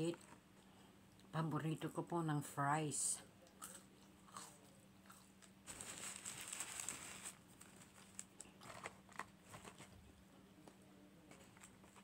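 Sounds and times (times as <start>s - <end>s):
chewing fries: 3.4s - 12.0s.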